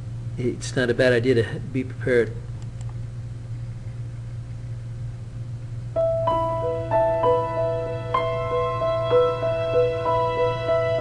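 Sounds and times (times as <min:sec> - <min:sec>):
steady low hum: 0:00.0 - 0:11.0
slow piano music: 0:05.9 - 0:11.0.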